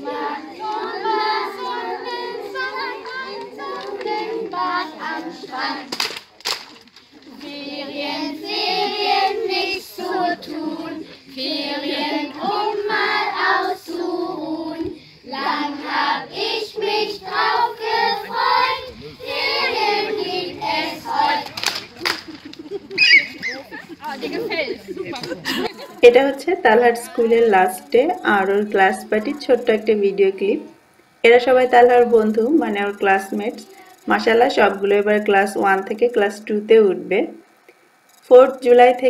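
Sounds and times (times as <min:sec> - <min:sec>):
young children singing: 0:00.0 - 0:06.0, 0:07.2 - 0:21.6
sharp claps or knocks: 0:05.9 - 0:07.0, 0:21.4 - 0:22.6.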